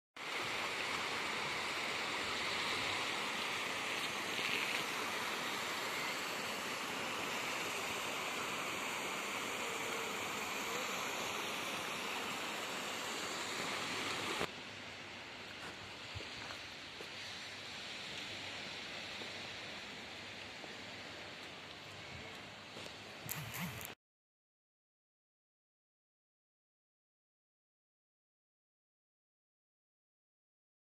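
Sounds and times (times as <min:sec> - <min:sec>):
surf washing on shore: 0:00.2 - 0:14.5.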